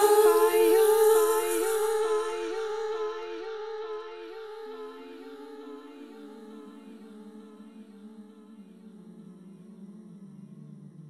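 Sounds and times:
lower held vocal note: 0:00.0 - 0:11.0.

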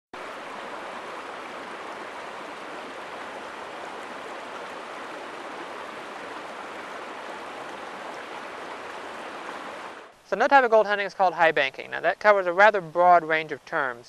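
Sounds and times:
river flowing over rocks: 0:00.2 - 0:10.2.

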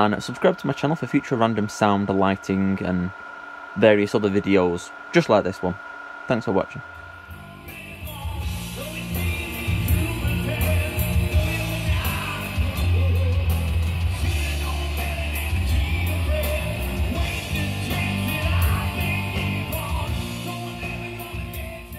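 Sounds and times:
drums: 0:02.4 - 0:21.9
bass guitar: 0:07.3 - 0:21.9
electric guitar: 0:07.3 - 0:21.9
person singing into a microphone: 0:07.4 - 0:21.9.

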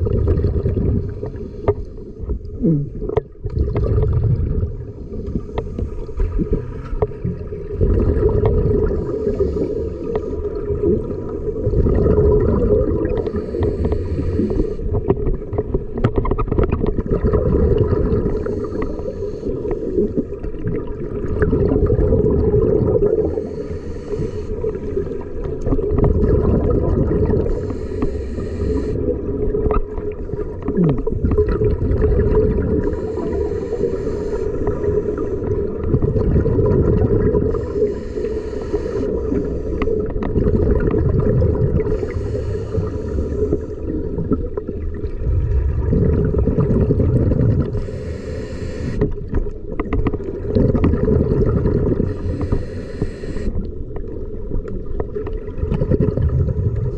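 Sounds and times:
rumbling bubble bursts: 0:00.0 - 0:01.4, 0:02.5 - 0:05.1, 0:06.2 - 0:09.1, 0:10.4 - 0:13.4, 0:16.5 - 0:18.6, 0:20.2 - 0:23.4, 0:25.6 - 0:27.6, 0:29.0 - 0:33.0, 0:35.5 - 0:37.6, 0:40.0 - 0:47.8, 0:50.2 - 0:52.2, 0:55.1 - 0:56.9
regulator hiss: 0:13.3 - 0:14.8, 0:23.3 - 0:24.6, 0:27.5 - 0:29.0, 0:32.9 - 0:35.4, 0:37.5 - 0:39.9, 0:41.9 - 0:43.8, 0:47.8 - 0:49.0, 0:52.1 - 0:53.6
steady low hum: 0:37.2 - 0:40.4, 0:41.4 - 0:44.4, 0:45.1 - 0:49.2, 0:52.0 - 0:53.7.

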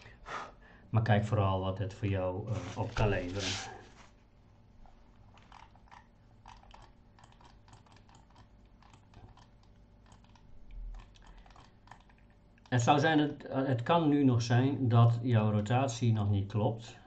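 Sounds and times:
keyboard and mouse clicking: 0:05.4 - 0:12.8.

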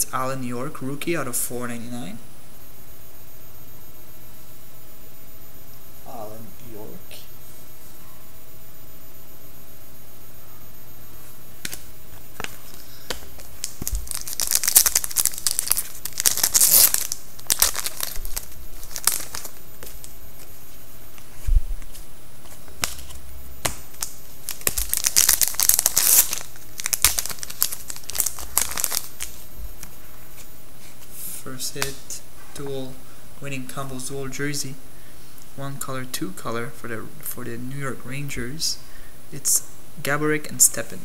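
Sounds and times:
card pack wrappers tearing: 0:12.4 - 0:20.1, 0:22.8 - 0:29.4.

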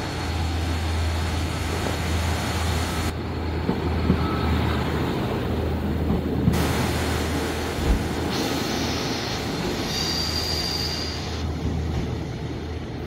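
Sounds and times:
train running on rails: 0:00.0 - 0:13.0
wheel squeal: 0:09.8 - 0:11.4.

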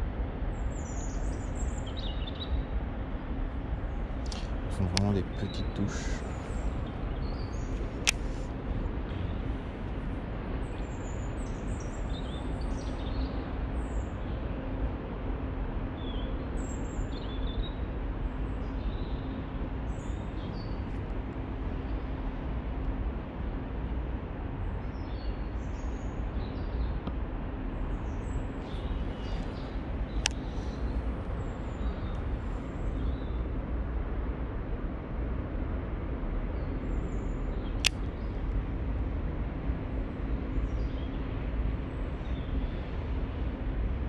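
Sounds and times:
faint hum: 0:00.0 - 0:44.0
steady low rumble: 0:00.0 - 0:44.0
small birds chirping: 0:03.9 - 0:09.6, 0:28.0 - 0:33.5
sharp click: 0:08.0 - 0:08.3.

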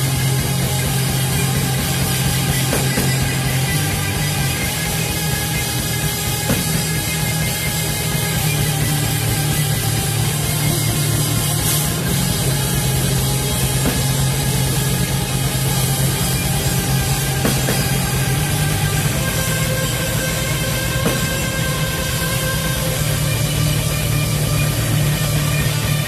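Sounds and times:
drum kit: 0:00.0 - 0:26.0
electric guitars: 0:00.0 - 0:26.0
metal band playing live: 0:00.0 - 0:26.0.

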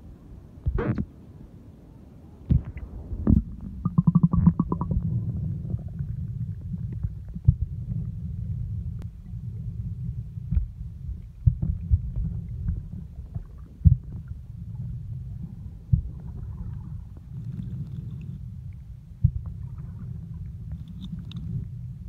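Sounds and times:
underwater rumble of moving water: 0:00.0 - 0:22.0
knocks and clicks: 0:03.3 - 0:05.0.

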